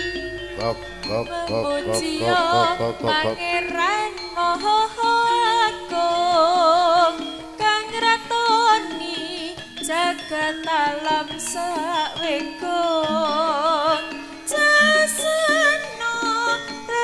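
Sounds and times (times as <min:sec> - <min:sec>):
live ensemble music: 0:00.0 - 0:08.5
melody with strong vibrato: 0:00.0 - 0:17.0.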